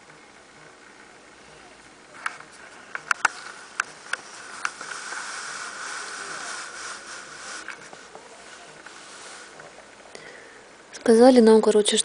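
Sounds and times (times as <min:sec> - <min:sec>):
hand stroking fur: 0:03.2 - 0:09.8.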